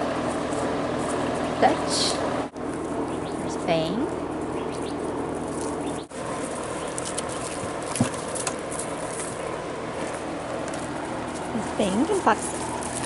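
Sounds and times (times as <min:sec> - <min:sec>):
puppies scuffling on gravel: 0:02.6 - 0:13.0.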